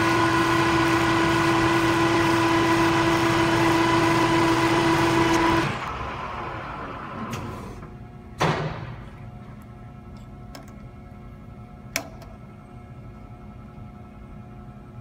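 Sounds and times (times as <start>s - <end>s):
metal lathe cutting steel: 0.0s - 7.2s.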